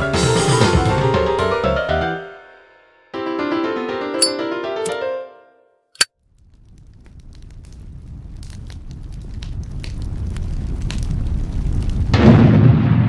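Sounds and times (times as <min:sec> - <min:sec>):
piano keyboard music: 0:03.2 - 0:05.4
low rumble with crackles: 0:06.2 - 0:13.0.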